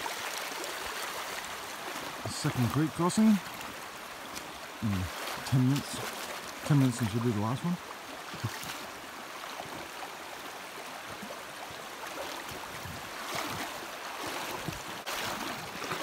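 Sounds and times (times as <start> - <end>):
legs wading through water: 0.0 - 16.0
rocky creek rippling: 0.0 - 16.0.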